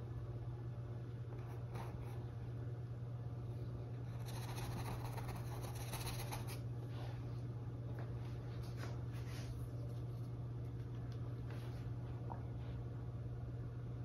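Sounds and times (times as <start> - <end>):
low electrical hum: 0.0 - 14.0
paintbrush scratching through paint: 4.1 - 6.6.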